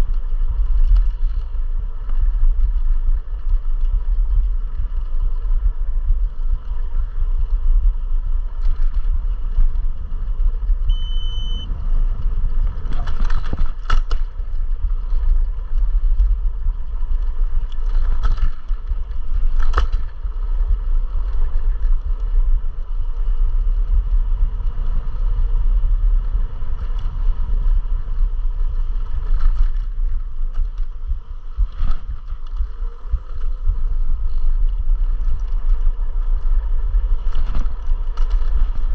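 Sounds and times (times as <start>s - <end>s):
faint whine: 0.0s - 38.9s
scooter riding rumble: 0.0s - 38.9s
short beep: 10.8s - 11.7s.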